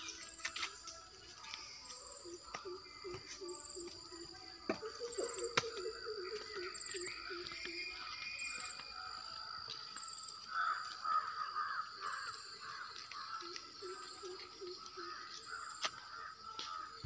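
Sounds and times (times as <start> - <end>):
high insect drone: 0.0 - 17.0
birds calling: 1.4 - 8.8.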